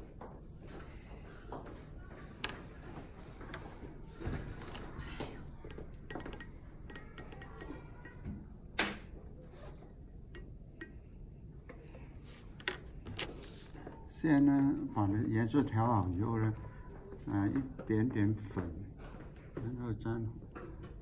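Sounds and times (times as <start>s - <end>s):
paintbrush clinking on ceramic palette: 5.6s - 8.4s, 10.3s - 11.2s.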